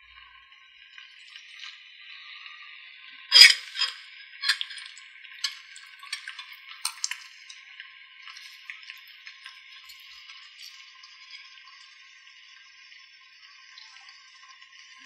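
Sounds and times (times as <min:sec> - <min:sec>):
clinks against glass bowl: 0:03.3 - 0:07.5.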